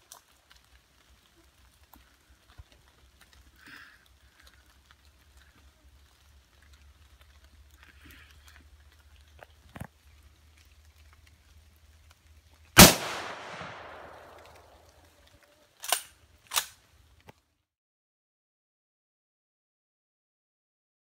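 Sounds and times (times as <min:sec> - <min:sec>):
rifle shot echoing: 0:12.8 - 0:14.8.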